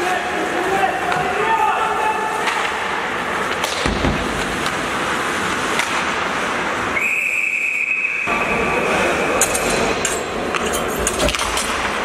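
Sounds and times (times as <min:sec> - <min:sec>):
skates and sticks on ice: 0:02.4 - 0:06.9
hockey stick clacks: 0:03.4 - 0:04.8, 0:05.6 - 0:06.1
referee's whistle: 0:07.0 - 0:08.6.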